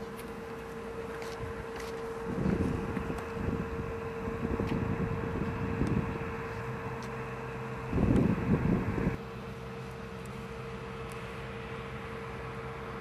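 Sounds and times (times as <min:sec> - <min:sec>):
faint steady hum: 0:00.0 - 0:13.0
wind buffeting microphone: 0:01.4 - 0:07.0, 0:07.7 - 0:09.2.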